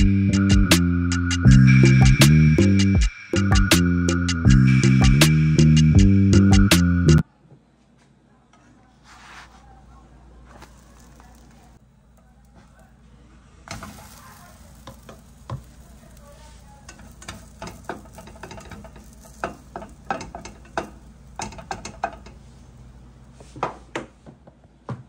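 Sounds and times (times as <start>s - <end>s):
plastic spatula scraping a pan: 8.9s - 9.7s, 13.7s - 22.8s
faint batter sizzle: 9.0s - 23.9s.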